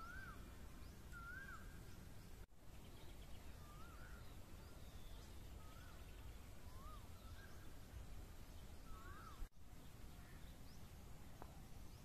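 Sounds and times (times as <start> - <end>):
bird whistling: 0.0 - 0.4, 1.1 - 1.8, 3.6 - 7.6.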